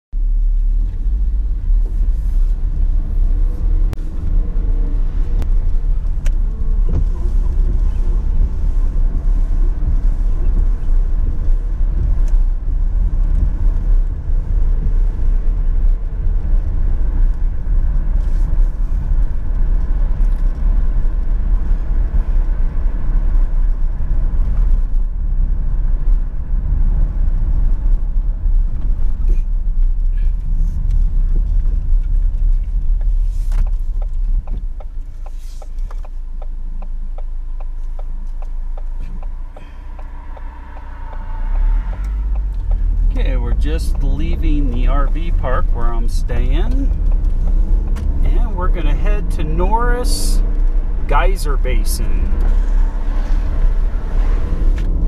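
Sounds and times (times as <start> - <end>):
vehicle engine and tyre rumble: 0.1 - 55.0.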